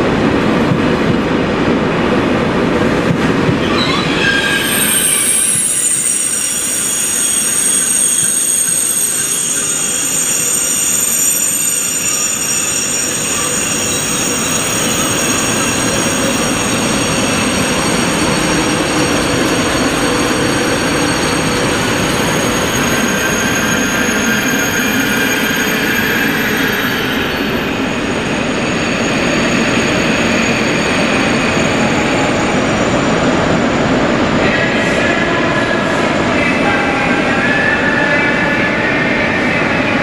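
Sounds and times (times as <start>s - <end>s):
high-pitched wheel squeal: 3.6s - 32.8s
lower wheel squeal: 3.6s - 33.0s.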